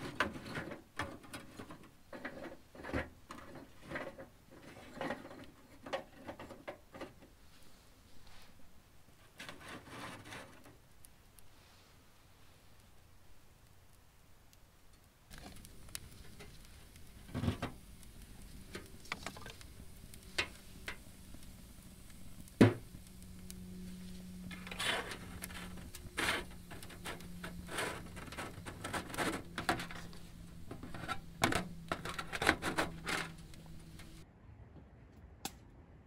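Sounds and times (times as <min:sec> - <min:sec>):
fire crackling and popping: 0:00.0 - 0:08.4, 0:09.0 - 0:34.2.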